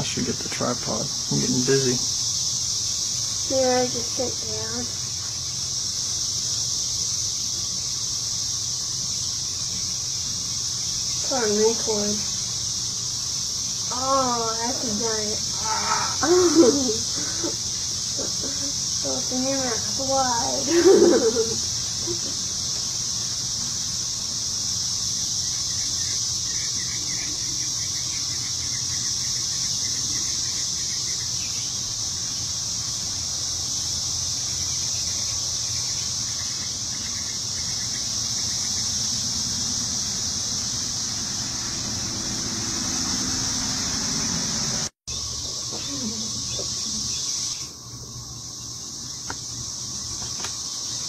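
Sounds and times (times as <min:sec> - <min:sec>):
insect chorus drone: 0:00.0 - 0:51.0
faint bird chirps: 0:25.4 - 0:32.5.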